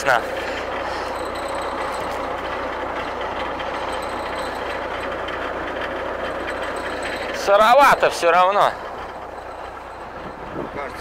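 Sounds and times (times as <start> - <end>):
mower engine running: 0.0 - 11.0.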